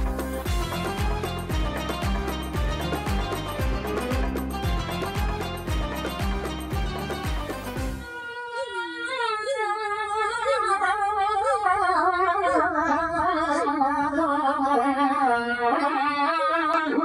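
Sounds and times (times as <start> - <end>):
person singing a wavering vocal line: 8.1 - 17.0.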